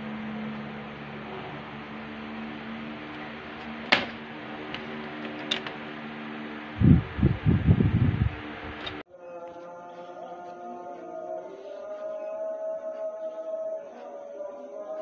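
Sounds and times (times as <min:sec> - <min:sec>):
low electrical hum: 0:00.0 - 0:09.0
handling noise by microphone: 0:03.1 - 0:06.0
chanting music: 0:08.9 - 0:15.0.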